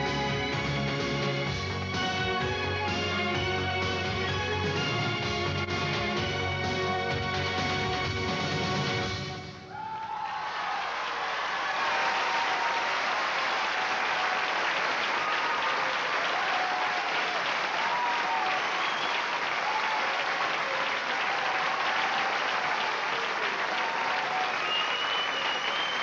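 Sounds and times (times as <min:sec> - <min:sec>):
faint cheers: 0:09.6 - 0:26.0
audience applauding: 0:09.7 - 0:26.0.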